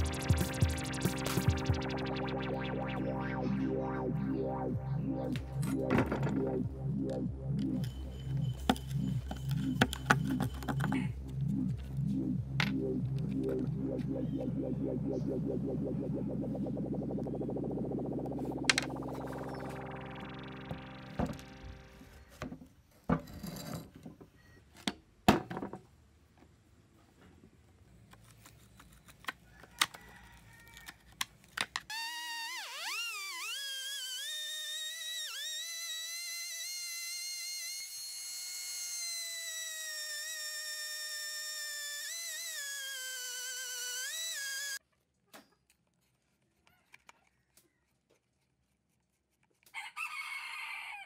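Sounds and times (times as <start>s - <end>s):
electric screwdriver whining: 31.9s - 44.8s.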